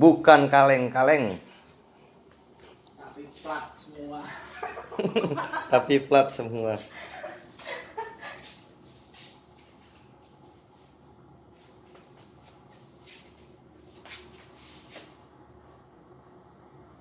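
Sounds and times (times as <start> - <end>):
faint taps and shuffles: 8.4 - 15.2.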